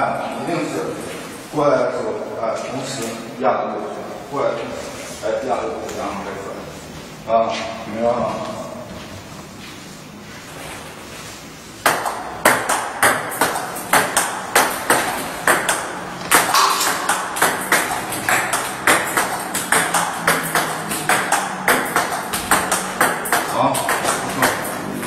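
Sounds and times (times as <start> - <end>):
table tennis ball clicking: 11.9 - 25.0.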